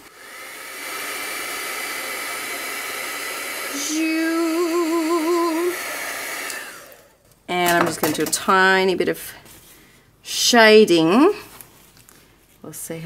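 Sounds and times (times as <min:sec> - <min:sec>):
heat gun blowing air: 0:00.0 - 0:07.2
person humming: 0:03.7 - 0:05.8.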